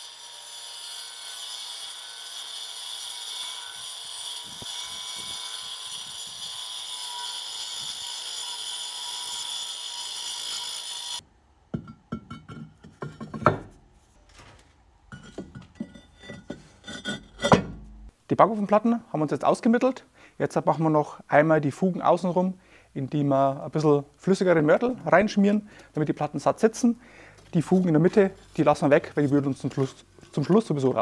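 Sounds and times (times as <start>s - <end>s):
angle grinder cutting stone: 0.0s - 11.2s
stone plate knocking and scraping: 11.7s - 13.8s, 15.1s - 18.1s.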